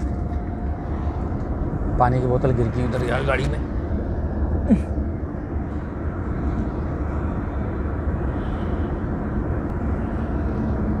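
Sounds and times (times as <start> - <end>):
car road noise: 0.0 - 11.0
engine hum: 0.0 - 11.0.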